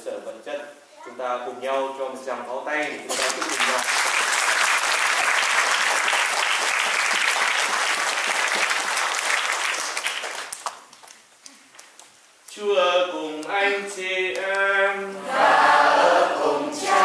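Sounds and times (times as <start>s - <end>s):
congregation applauding: 3.1s - 12.0s.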